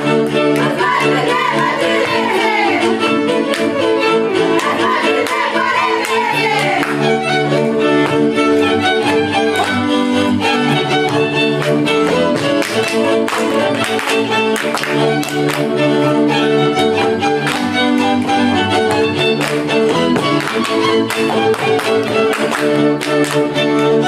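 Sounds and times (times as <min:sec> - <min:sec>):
string band playing dance tune: 0:00.0 - 0:24.0
dancers stamping and boot slapping: 0:17.4 - 0:22.5.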